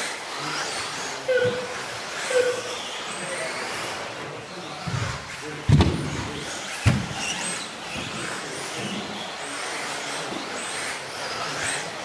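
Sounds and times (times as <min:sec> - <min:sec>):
rc car motors whining: 0:00.0 - 0:12.0
heavy thumps: 0:05.7 - 0:07.2.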